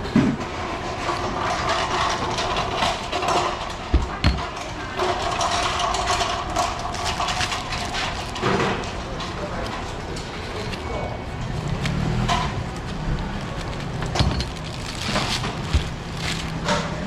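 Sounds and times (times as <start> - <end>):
steady mechanical hum: 0.0 - 17.0
plastic bags crinkling: 4.9 - 9.8, 12.9 - 17.0.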